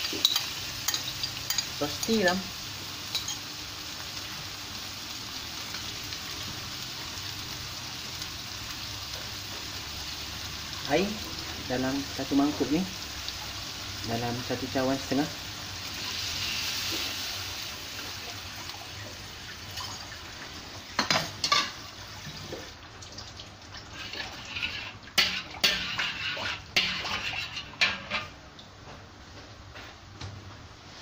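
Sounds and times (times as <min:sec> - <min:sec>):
water sizzling in hot wok: 0:00.0 - 0:23.0, 0:23.6 - 0:28.3
metal spatula scraping wok: 0:23.9 - 0:28.4.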